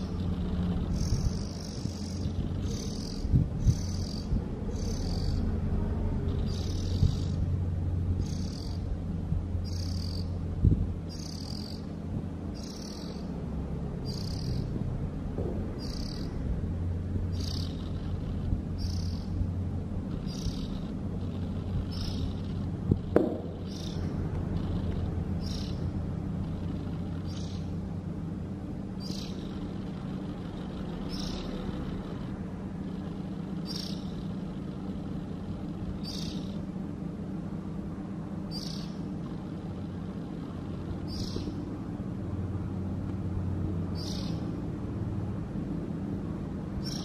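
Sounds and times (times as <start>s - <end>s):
bird giving high chirps: 0.0s - 5.5s, 6.3s - 7.4s, 8.2s - 8.9s, 9.6s - 10.4s, 11.1s - 11.9s, 12.6s - 13.3s, 14.0s - 14.7s, 15.8s - 16.4s, 17.3s - 18.1s, 18.8s - 19.4s, 20.2s - 20.9s, 21.8s - 22.5s, 23.5s - 25.9s, 27.2s - 27.7s, 29.0s - 29.6s, 31.0s - 31.7s, 33.6s - 34.3s, 36.0s - 36.6s, 38.5s - 39.0s, 41.1s - 41.6s, 43.9s - 44.5s, 46.8s - 47.0s
steady low hum: 0.0s - 47.0s.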